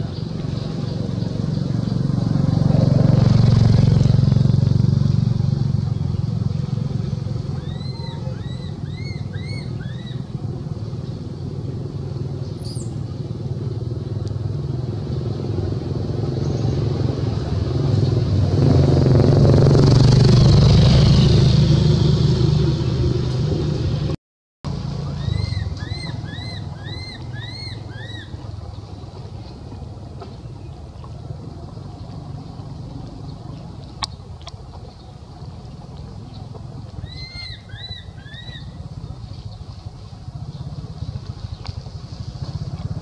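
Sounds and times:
vehicle engine running: 0:00.0 - 0:43.0
high squeaky calls: 0:07.3 - 0:10.3, 0:25.1 - 0:28.5, 0:37.0 - 0:38.8.

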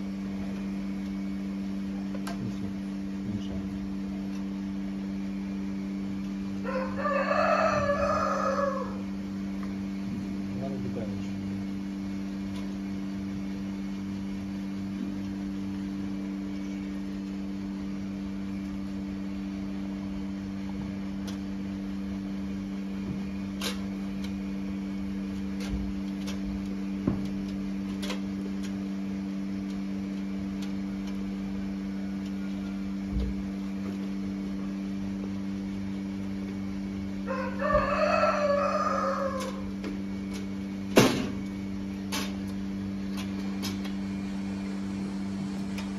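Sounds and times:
rooster crowing: 0:06.6 - 0:09.3, 0:37.1 - 0:39.8.

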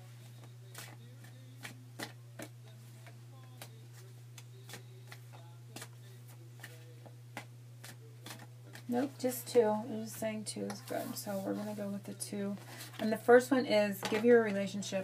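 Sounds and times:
low electrical hum: 0:00.0 - 0:15.0
cards being shuffled: 0:00.3 - 0:09.0.

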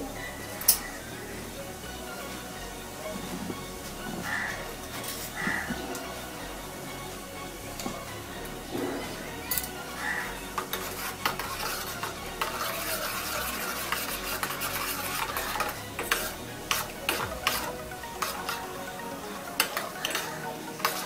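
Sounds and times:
seeds sizzling in hot oil: 0:09.6 - 0:21.0.

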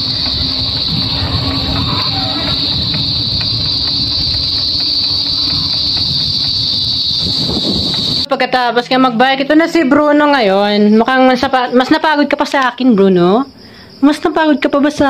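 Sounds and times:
wind rumble on microphone: 0:00.0 - 0:08.3
high-pitched insect chorus: 0:00.0 - 0:15.0.

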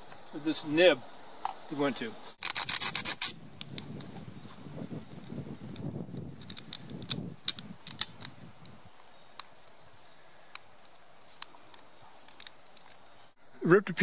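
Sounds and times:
rough rubbing: 0:02.3 - 0:03.4.

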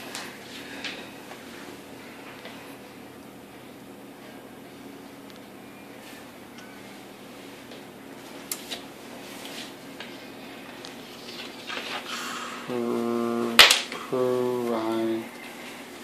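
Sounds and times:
person humming: 0:12.5 - 0:15.3.

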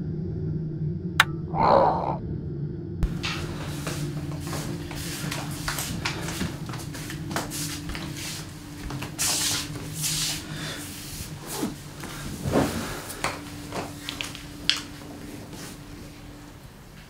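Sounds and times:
footsteps: 0:03.0 - 0:10.5.

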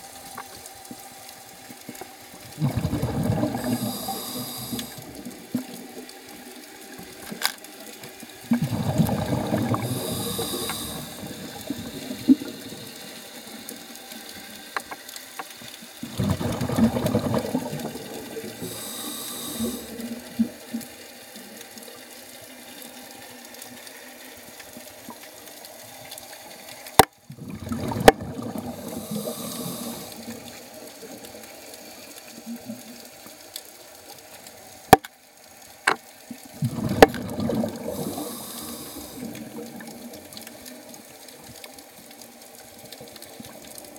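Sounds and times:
exhaust bubbles rumbling: 0:02.6 - 0:05.8, 0:08.5 - 0:13.7, 0:16.0 - 0:20.3, 0:27.4 - 0:30.2, 0:36.5 - 0:40.1
regulator hiss on inhale: 0:03.3 - 0:05.8, 0:09.0 - 0:16.0, 0:17.3 - 0:20.4, 0:28.1 - 0:32.5, 0:37.7 - 0:40.8.

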